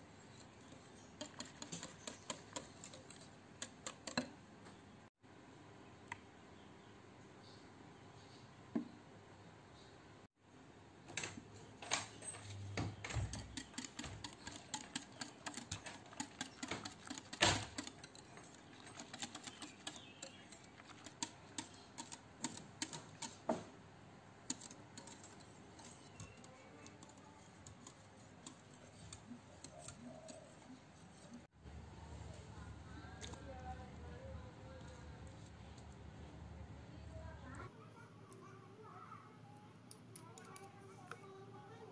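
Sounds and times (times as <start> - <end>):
whisk clicking against glass bowl: 1.2 - 4.3, 13.0 - 23.4, 24.4 - 31.1.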